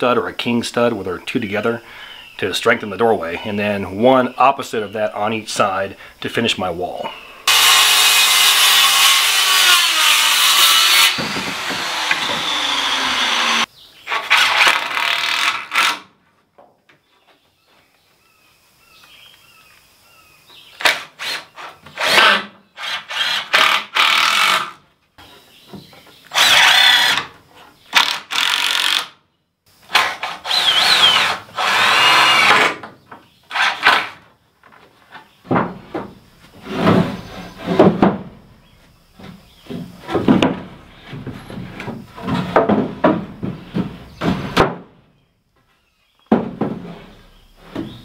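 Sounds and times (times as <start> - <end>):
power saw cutting wood: 7.5 - 16.1, 21.2 - 24.8, 26.3 - 27.3, 29.9 - 32.8, 33.5 - 34.2.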